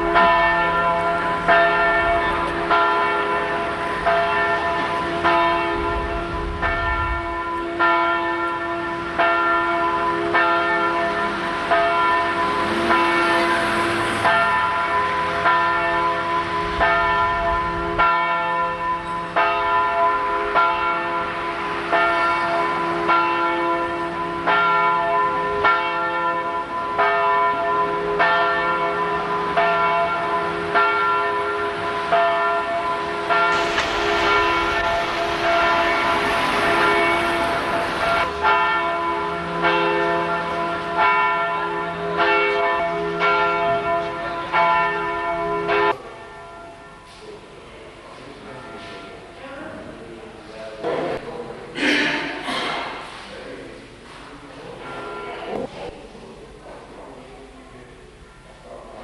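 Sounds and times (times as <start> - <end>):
bells ringing: 0.0 - 47.4, 54.6 - 55.8
low rumble: 5.2 - 7.8, 33.1 - 39.6.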